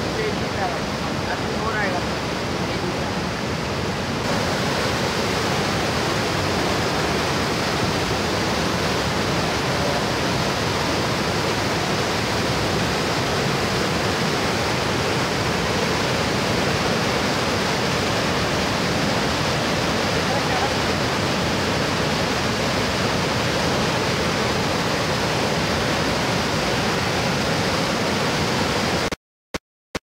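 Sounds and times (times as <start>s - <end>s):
rushing floodwater: 0.0s - 29.2s.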